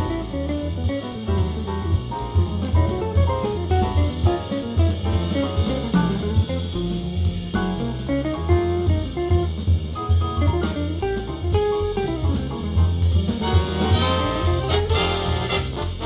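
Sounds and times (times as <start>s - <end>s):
bass and drums: 0.0s - 16.0s
saxophones and trumpets: 13.5s - 16.0s.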